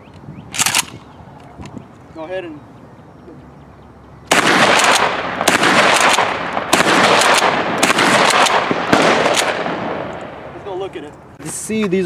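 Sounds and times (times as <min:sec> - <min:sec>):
shotgun shots with echo: 0:04.3 - 0:10.5.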